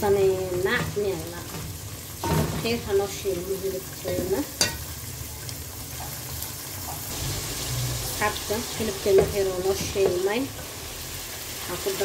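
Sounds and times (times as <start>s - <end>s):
meat sizzling: 0.0s - 12.0s
spoon knocking on pot: 4.1s - 4.8s.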